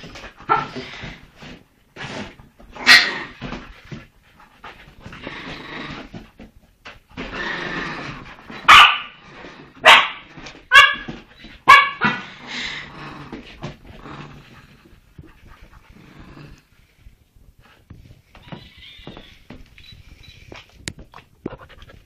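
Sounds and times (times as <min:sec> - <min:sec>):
small dog yapping: 0:08.6 - 0:09.1.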